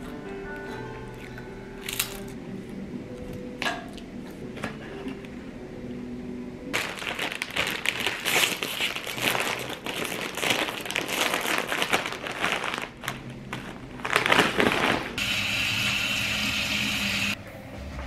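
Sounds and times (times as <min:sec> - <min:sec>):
chip bag crinkling: 0:06.8 - 0:15.2.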